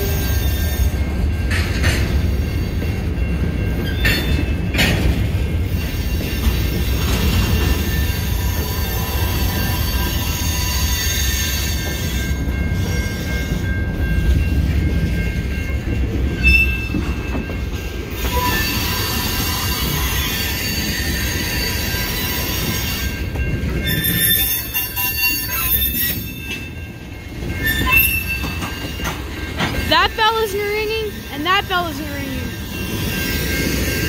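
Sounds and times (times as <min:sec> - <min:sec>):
train wheels rumbling: 0:00.0 - 0:34.0
high wheel squeal: 0:05.7 - 0:12.4, 0:18.1 - 0:26.8, 0:27.5 - 0:29.1.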